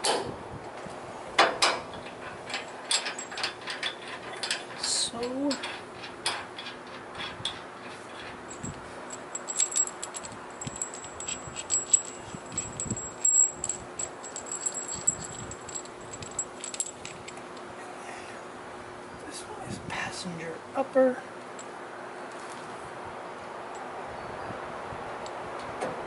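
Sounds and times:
steel parts clinking: 0:01.6 - 0:17.7.

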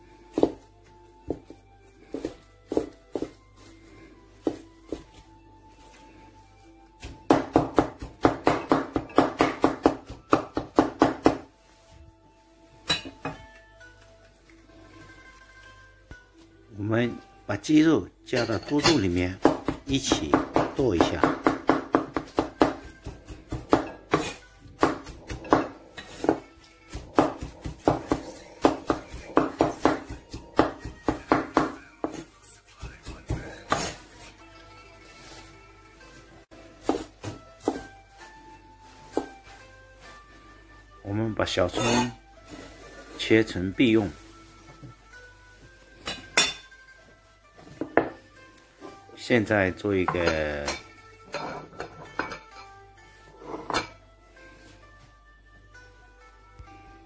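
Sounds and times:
cleaver chopping meat on wooden board: 0:07.0 - 0:11.5, 0:19.4 - 0:32.2.

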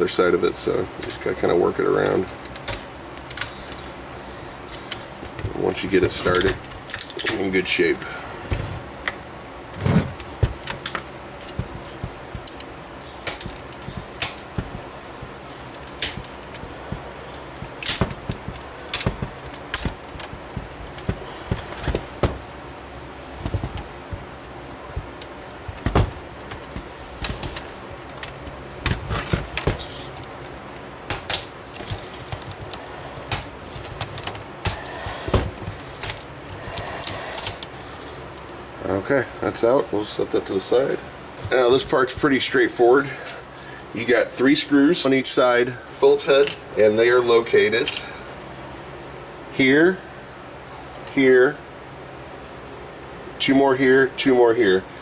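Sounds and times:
scraping on plastic: 0:08.4 - 0:08.9, 0:09.7 - 0:12.7, 0:23.2 - 0:24.3, 0:24.9 - 0:30.4
plastic clips snapping: 0:10.4 - 0:14.9, 0:15.5 - 0:22.4, 0:31.1 - 0:37.7.

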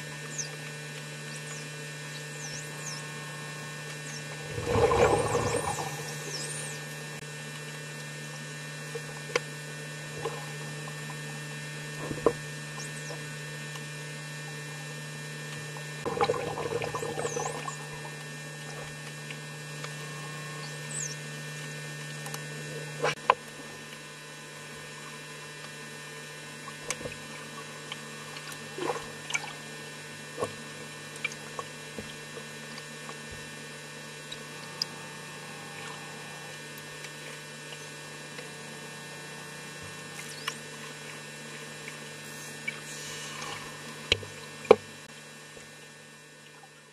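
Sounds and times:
steady low hum: 0:00.0 - 0:46.9
dolphin whistles: 0:05.3 - 0:06.8.

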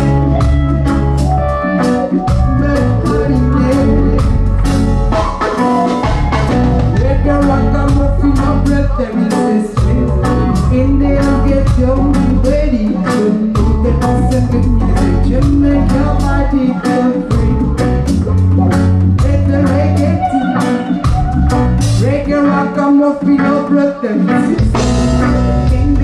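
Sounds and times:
reggae band playing: 0:00.0 - 0:26.0
woman singing: 0:02.3 - 0:04.5, 0:06.9 - 0:18.0, 0:19.2 - 0:26.0.

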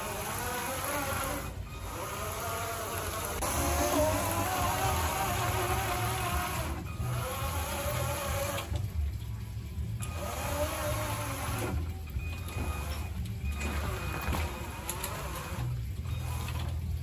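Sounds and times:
electric motors whining: 0:00.0 - 0:09.1, 0:09.7 - 0:17.0.

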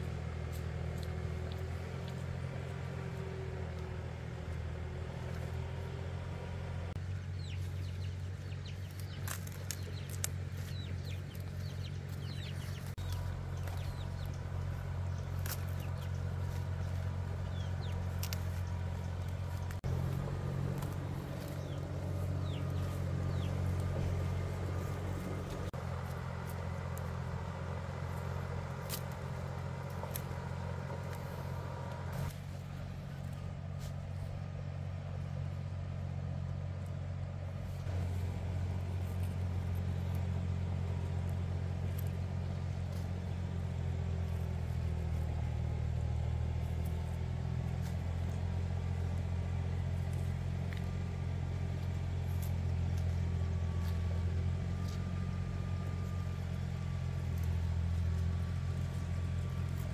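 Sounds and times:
engine humming: 0:00.0 - 0:59.9.

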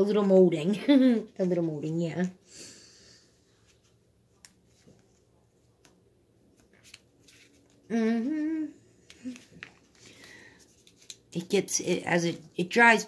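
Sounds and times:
woman humming: 0:07.9 - 0:09.5.

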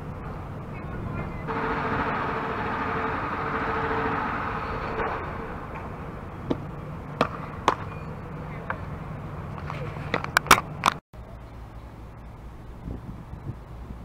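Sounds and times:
vehicle hum: 0:00.0 - 0:14.0.

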